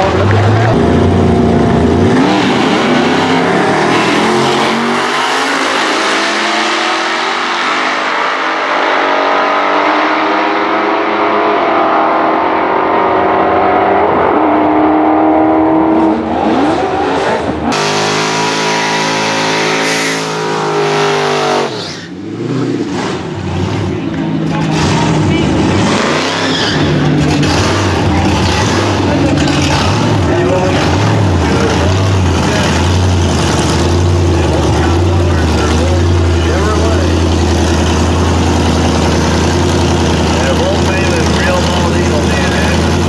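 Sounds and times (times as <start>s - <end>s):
engine revving in a burnout: 0.0s - 43.0s
engines accelerating hard: 0.0s - 43.0s.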